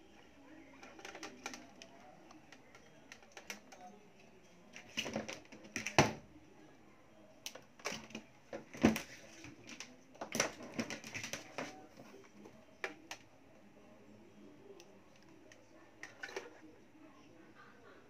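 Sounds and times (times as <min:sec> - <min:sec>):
hands clicking on plastic parts: 0:00.8 - 0:03.9.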